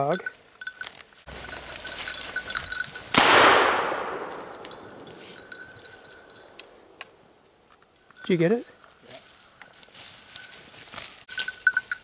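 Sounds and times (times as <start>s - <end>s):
shotgun shot: 3.1s - 5.0s.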